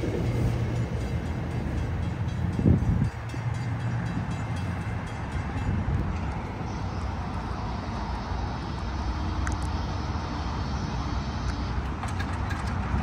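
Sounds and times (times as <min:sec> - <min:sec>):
cars crossing railroad crossing: 0:00.0 - 0:13.0
road traffic rumble: 0:00.0 - 0:13.0.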